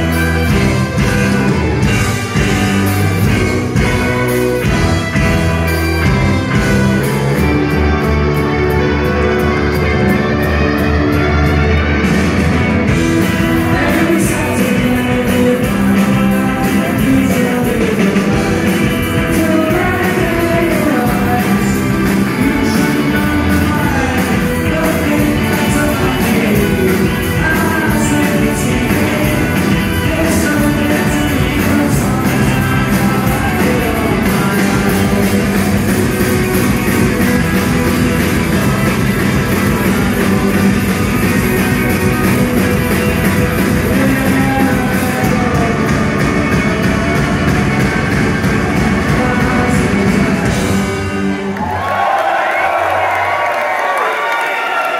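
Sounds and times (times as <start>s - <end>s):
drums: 0.0s - 54.9s
electric guitars: 0.0s - 54.9s
person singing lead vocal: 13.0s - 36.1s, 38.5s - 41.5s, 43.0s - 47.2s, 48.6s - 51.4s.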